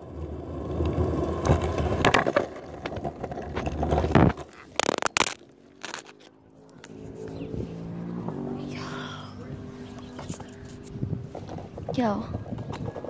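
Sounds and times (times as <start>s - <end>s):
longboard wheels rolling on concrete: 0.0s - 13.0s
sharp clicks: 4.1s - 7.0s.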